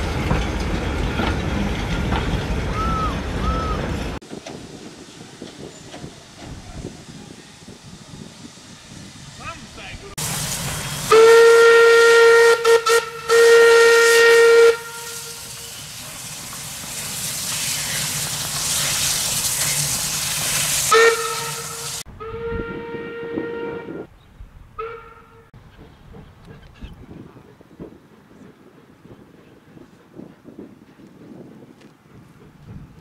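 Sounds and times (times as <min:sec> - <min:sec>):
steady hiss of steam: 0:04.2 - 0:22.1
steam whistle blowing: 0:11.0 - 0:15.9, 0:20.9 - 0:24.1.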